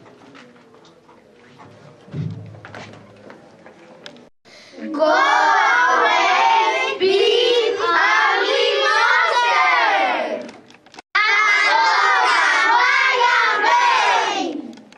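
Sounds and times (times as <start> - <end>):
children shouting in chorus: 11.2 - 14.6.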